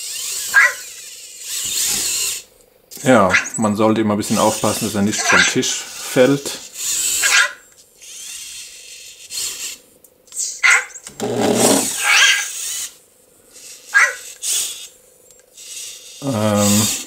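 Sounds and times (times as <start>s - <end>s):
toy robot electronic chirps: 0.0s - 2.4s, 10.3s - 11.1s, 11.9s - 12.9s
small motors whirring: 0.0s - 3.6s, 4.3s - 17.0s.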